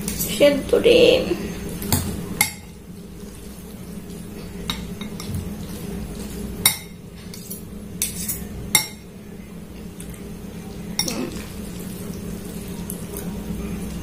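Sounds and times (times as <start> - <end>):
metal cutlery scraping glass bowl: 7.3 - 8.5.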